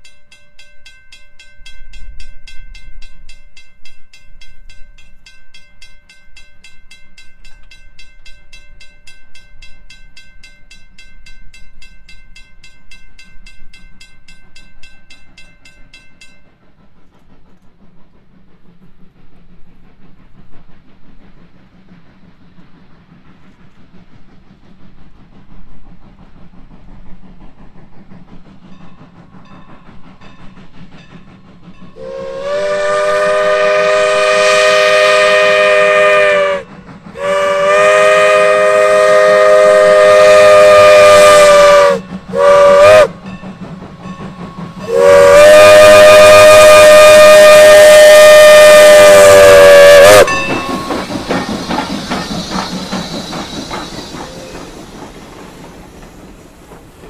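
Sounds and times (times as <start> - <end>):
steam whistle blasts: 32.0 - 43.2, 44.5 - 54.8.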